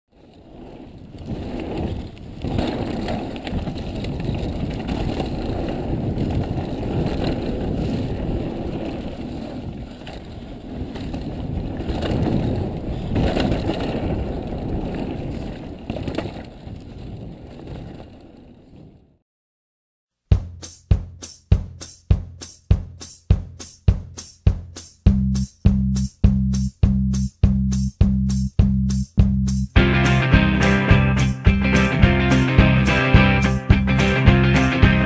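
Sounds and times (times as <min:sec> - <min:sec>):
bike tyres rolling over dirt: 0:00.1 - 0:19.2
wind rumble on microphone: 0:00.1 - 0:19.2.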